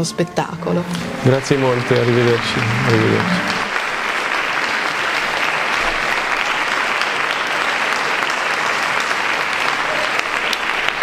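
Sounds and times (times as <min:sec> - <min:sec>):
audience applauding: 0:00.9 - 0:11.0.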